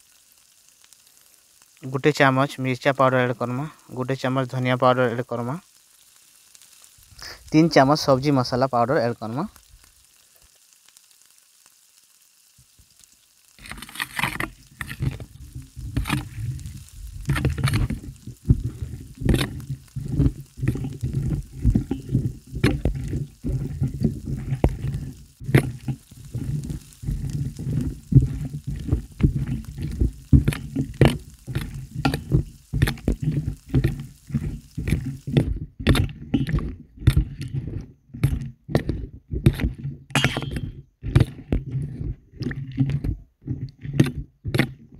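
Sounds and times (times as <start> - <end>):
food sizzling: 0.0 - 44.9
spatula scraping pan: 13.6 - 44.9.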